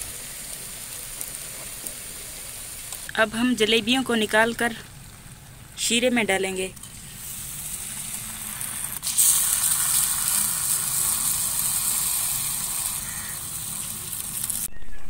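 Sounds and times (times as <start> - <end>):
batter sizzling in hot oil: 0.0 - 5.8, 6.7 - 14.7.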